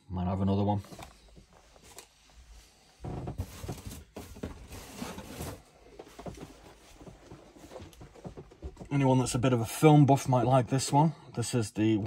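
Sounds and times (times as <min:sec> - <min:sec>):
cardboard boxes rustling and scraping: 0:01.6 - 0:08.8.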